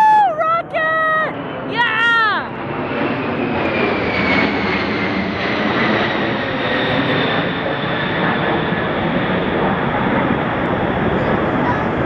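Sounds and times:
jet aircraft passing overhead: 0.0 - 12.0.

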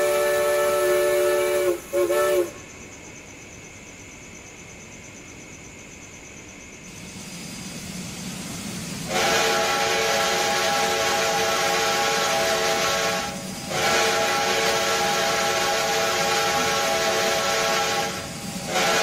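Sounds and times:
steam locomotive whistle: 0.0 - 2.6, 9.0 - 19.0
steam hissing: 0.0 - 2.8, 6.8 - 19.0.

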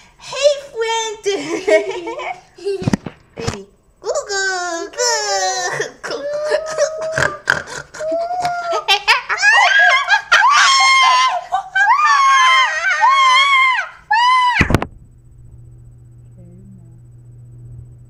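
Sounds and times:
child laughing: 5.5 - 13.2
child screaming: 9.5 - 14.7.

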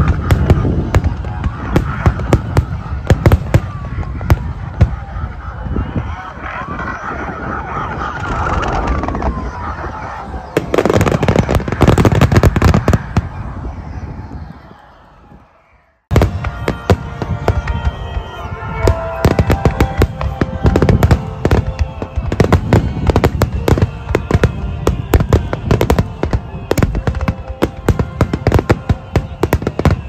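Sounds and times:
music playing: 16.2 - 29.9.

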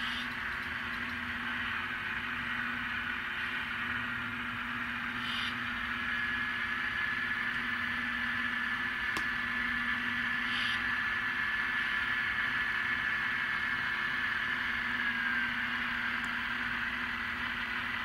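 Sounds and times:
high whine: 0.0 - 18.0
model locomotive engine drone: 0.0 - 18.0.

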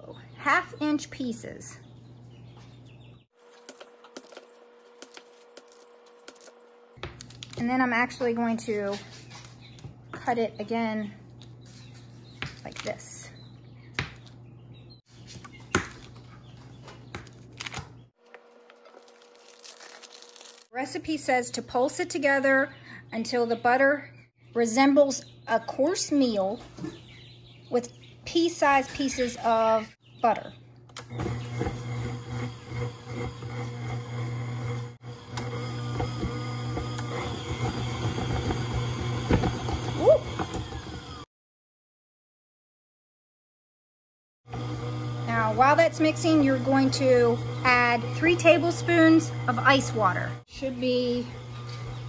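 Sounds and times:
stand mixer motor humming: 31.0 - 41.2, 44.5 - 50.4, 51.1 - 52.0.

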